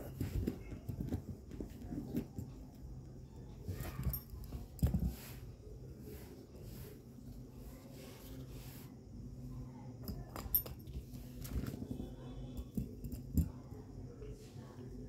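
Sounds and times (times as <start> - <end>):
paper and pen rustling: 3.7 - 9.0, 10.8 - 12.1.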